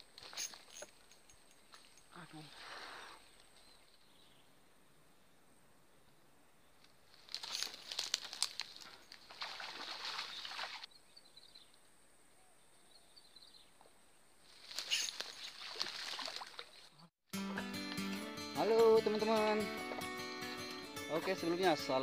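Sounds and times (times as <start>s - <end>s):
dry fronds rustling underfoot: 6.8s - 10.9s, 14.4s - 16.8s.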